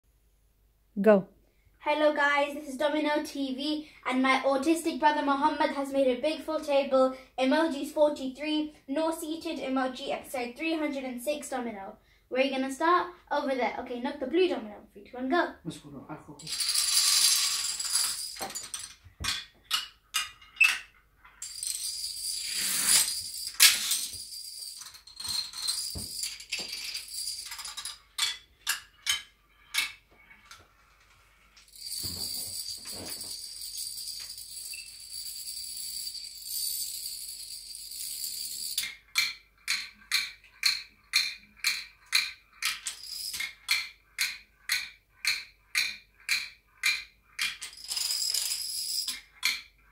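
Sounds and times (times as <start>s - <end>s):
dominoes rattling clatter: 16.4s - 30.0s, 31.5s - 49.7s
plastic dominoes clicking: 16.5s - 19.0s, 21.4s - 30.0s, 31.6s - 49.7s.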